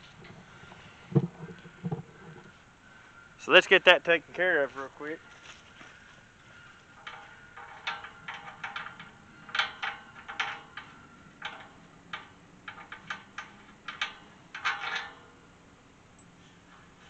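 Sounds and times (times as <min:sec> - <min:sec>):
metal gate hinge clinking: 0:06.9 - 0:15.6.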